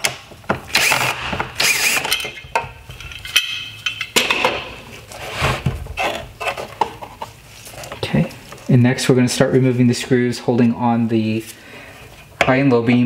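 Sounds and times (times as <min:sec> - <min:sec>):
cordless screwdriver whirring: 0:00.7 - 0:02.1.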